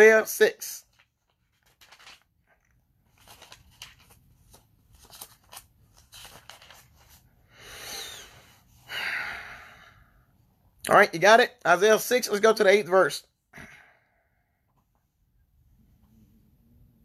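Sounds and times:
thin pages rustling: 0.8 - 7.3.

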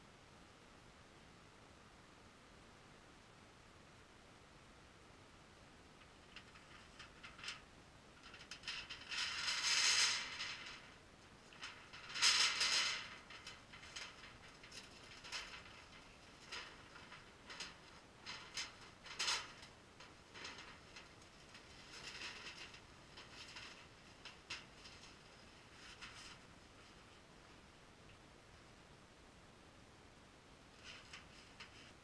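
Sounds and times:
sheet metal rattling and crinkling: 6.0 - 27.2, 30.7 - 32.0.

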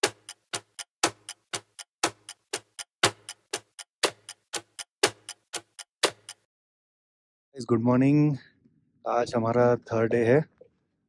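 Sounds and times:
clock ticking: 0.0 - 6.5.

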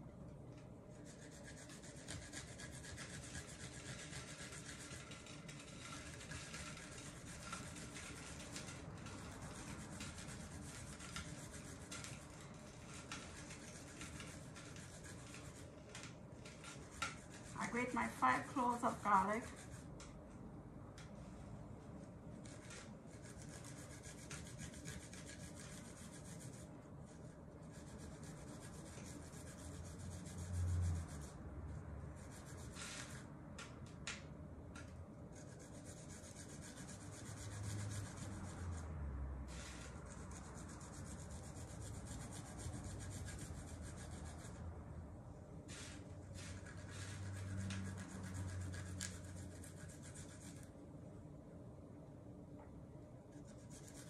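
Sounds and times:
garlic scraping on grater: 1.2 - 20.0.

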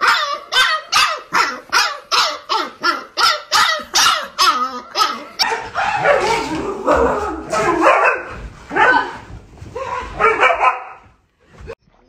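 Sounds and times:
puppy barking in yelps: 0.0 - 6.5, 7.5 - 9.1.

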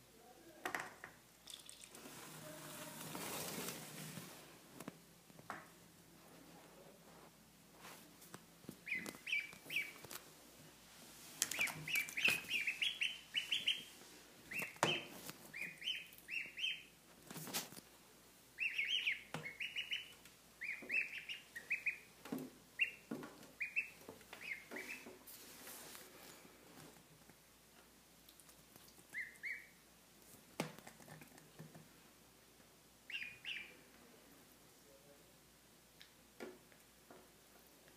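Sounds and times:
duckling peeping: 8.7 - 10.2, 11.4 - 17.0, 18.5 - 25.3, 29.0 - 29.8, 33.0 - 33.9.

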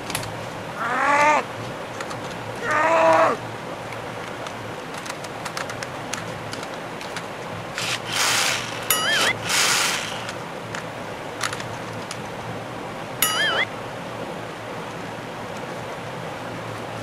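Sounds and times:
plastic toy car clicks: 4.9 - 7.2
wobbling electronic tone: 8.9 - 9.4, 13.2 - 13.7.

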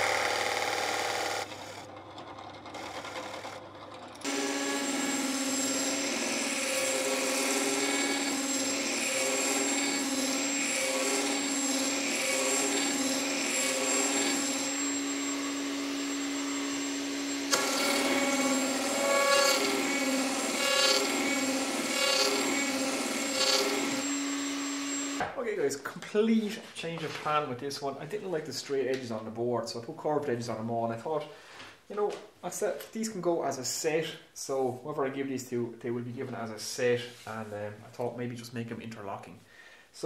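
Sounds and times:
router whining cutting wood: 0.0 - 2.0, 2.7 - 25.3.

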